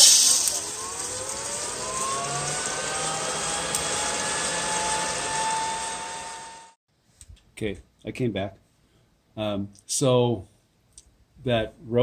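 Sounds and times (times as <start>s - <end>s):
cooling fan air rushing: 0.0s - 6.8s
faint whines rising in pitch: 0.0s - 6.8s.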